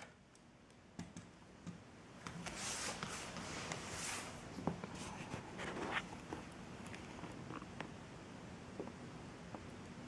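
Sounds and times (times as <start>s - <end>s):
small clicks and taps: 0.0s - 3.1s.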